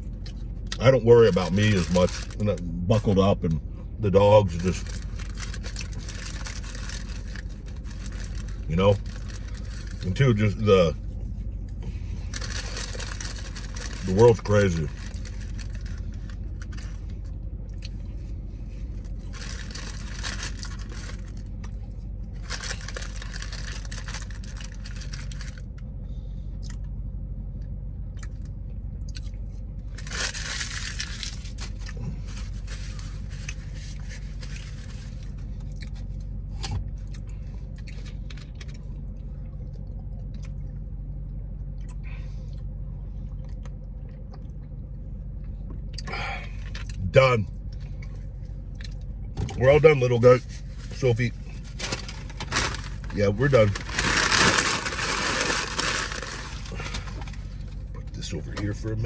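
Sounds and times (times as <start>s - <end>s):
car cabin hum: 0.0s - 59.0s
food wrapper crinkling: 1.3s - 2.6s, 4.4s - 10.6s, 12.3s - 17.1s, 19.0s - 25.7s, 29.9s - 36.3s, 50.5s - 57.8s.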